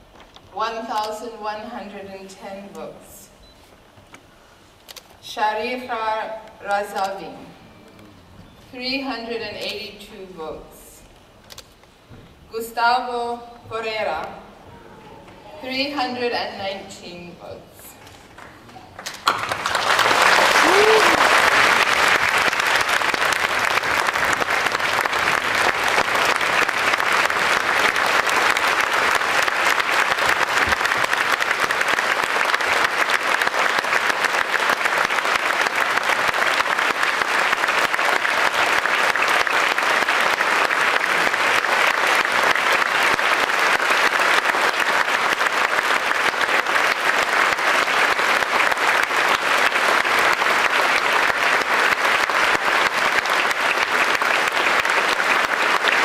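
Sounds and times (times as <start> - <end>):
audience applauding: 18.2 - 56.0.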